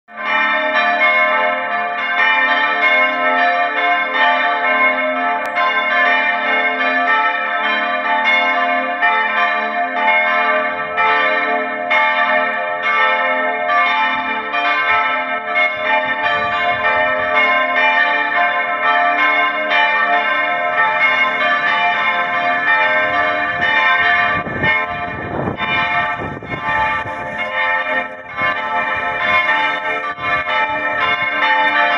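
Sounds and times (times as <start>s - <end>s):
church bells pealing: 0.1s - 31.9s.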